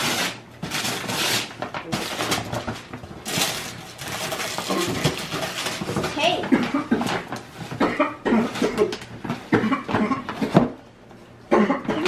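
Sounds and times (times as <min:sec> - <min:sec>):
wrapping paper tearing and crumpling: 0:00.0 - 0:07.8.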